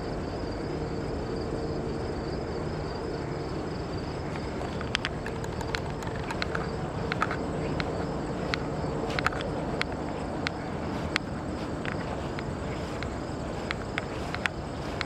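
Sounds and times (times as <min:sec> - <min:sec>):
outdoor background hiss: 0:00.0 - 0:15.0
footsteps on grass: 0:04.2 - 0:15.0.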